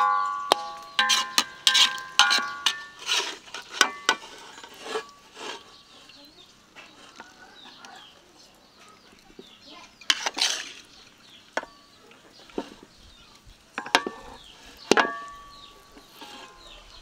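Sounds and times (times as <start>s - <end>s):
kitchen utensils clattering: 0.0s - 5.8s, 13.8s - 17.0s.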